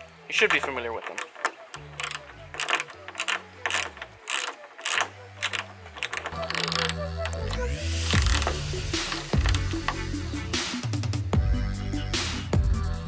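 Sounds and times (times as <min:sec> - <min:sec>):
hand ratchet clicking: 0:00.5 - 0:10.1.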